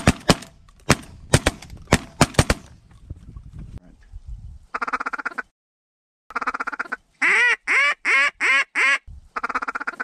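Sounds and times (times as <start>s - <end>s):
duck call chuckling clucks: 6.3s - 10.0s
duck call drawn-out quacks: 6.3s - 10.0s.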